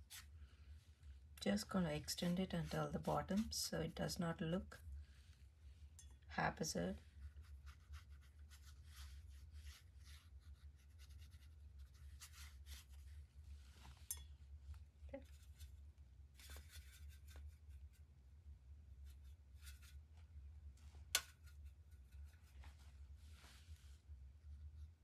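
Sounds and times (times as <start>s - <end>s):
steady low hum: 0.0s - 25.0s
paintbrush scratching on paper: 1.6s - 3.7s, 7.0s - 13.2s, 16.4s - 18.0s.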